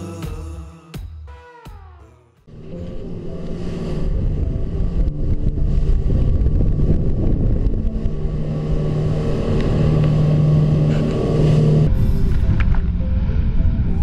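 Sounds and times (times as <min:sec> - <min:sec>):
background music tones: 0:00.0 - 0:14.0
motorboat engine rumble: 0:02.5 - 0:14.0
wind buffeting microphone: 0:03.8 - 0:14.0.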